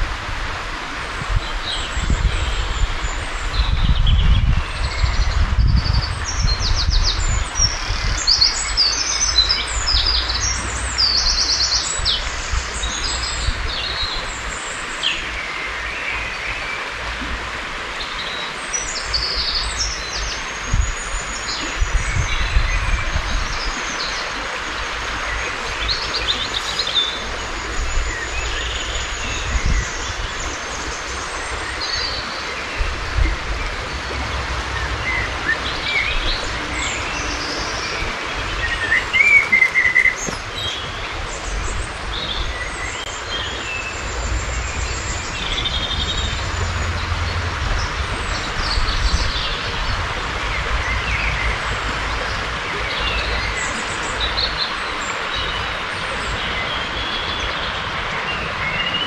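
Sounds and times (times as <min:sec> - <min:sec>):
songbirds singing: 0:01.1 - 0:59.0
low rumbles: 0:27.8 - 0:39.0, 0:40.2 - 0:53.7.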